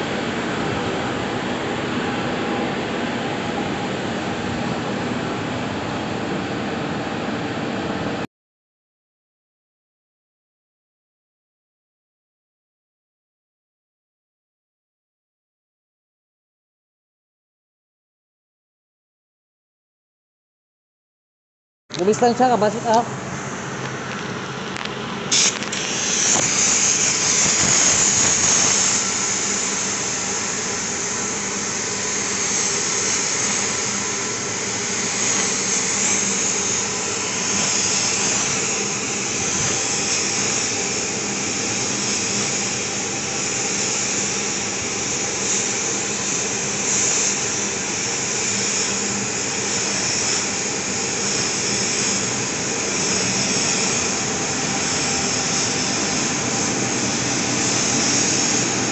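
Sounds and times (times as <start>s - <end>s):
sharp burst of air: 25.2s - 58.9s
paint spray gun hissing: 25.3s - 58.9s.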